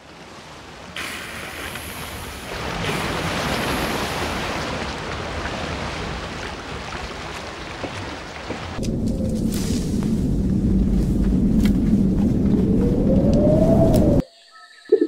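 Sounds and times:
waves rushing: 0:00.0 - 0:14.2
wind noise: 0:08.8 - 0:14.2.

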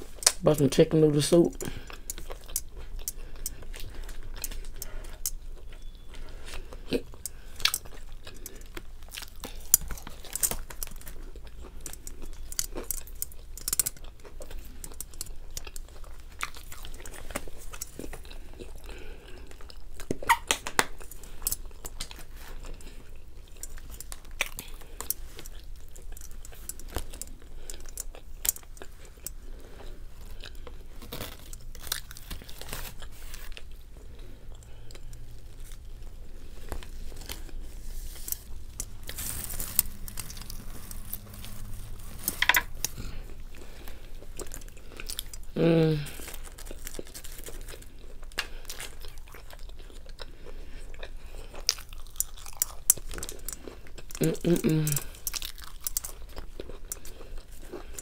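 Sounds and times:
chewing crunches: 0:00.0 - 0:58.0
wet mouth clicks: 0:20.0 - 0:21.0.

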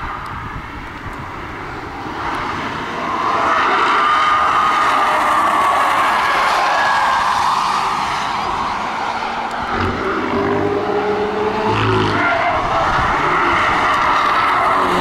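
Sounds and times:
car tyre and road noise: 0:00.0 - 0:15.0
tyre squeals: 0:11.6 - 0:15.0.

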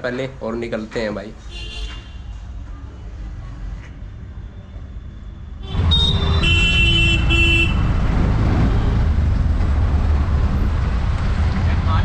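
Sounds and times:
auto-rickshaw engine and road rumble: 0:02.4 - 0:12.0
vehicle horn toots: 0:05.6 - 0:07.9.

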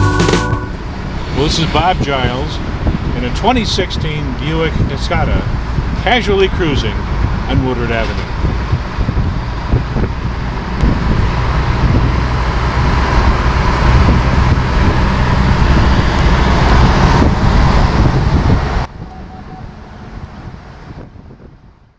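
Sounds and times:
road noise inside a car: 0:00.8 - 0:21.9
wind buffeting the microphone: 0:01.0 - 0:21.9.

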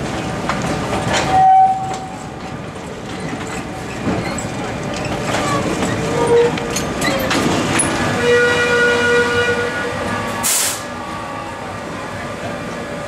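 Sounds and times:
tram wheels clicking over rail joints: 0:00.0 - 0:08.2
tram wheels squealing: 0:01.0 - 0:02.4, 0:03.0 - 0:11.6
short hiss: 0:10.4 - 0:10.9.

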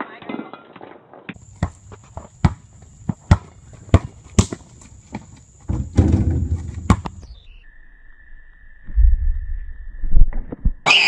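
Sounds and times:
basketball bouncing on asphalt: 0:01.3 - 0:07.3
rough noise: 0:01.4 - 0:07.4.

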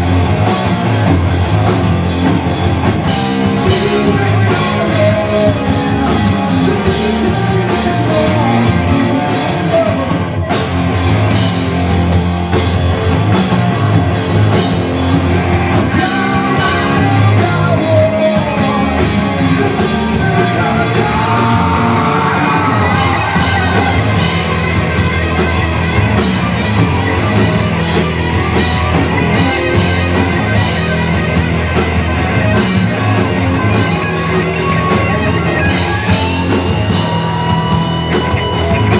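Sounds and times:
bass guitar: 0:00.0 - 0:38.9
distorted electric guitars: 0:00.0 - 0:38.9
drum kit: 0:00.0 - 0:38.9
lead singer's voice: 0:03.4 - 0:10.5, 0:15.6 - 0:24.6.

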